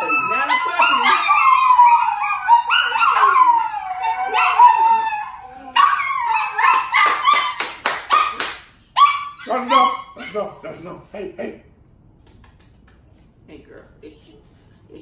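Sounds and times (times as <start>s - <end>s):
dog howling: 0.0s - 7.6s
hands clapping rapidly: 6.7s - 8.8s.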